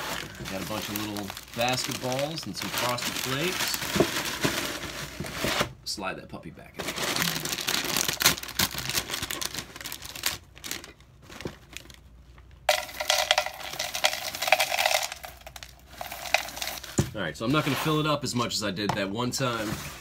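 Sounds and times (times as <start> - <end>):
cereal pouring into cup: 0.0 - 3.8, 12.7 - 17.0
plastic bag crinkling: 0.0 - 5.3, 6.8 - 12.1, 12.7 - 17.0.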